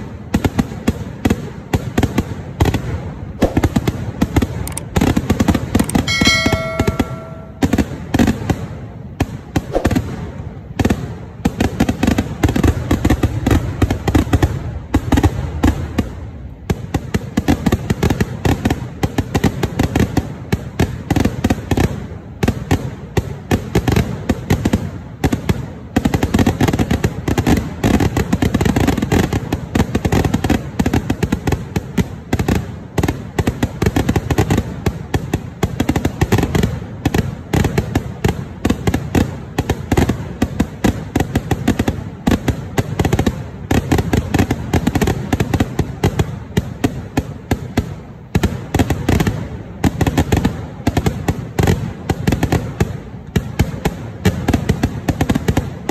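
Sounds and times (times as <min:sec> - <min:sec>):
firecracker and shell bangs: 0:03.4 - 0:10.4.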